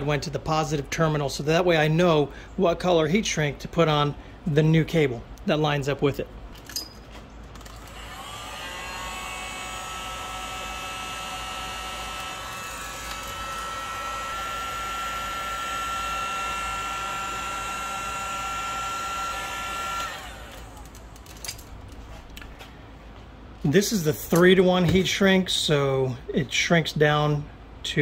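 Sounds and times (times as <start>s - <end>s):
heat gun blowing air: 7.8s - 21.0s.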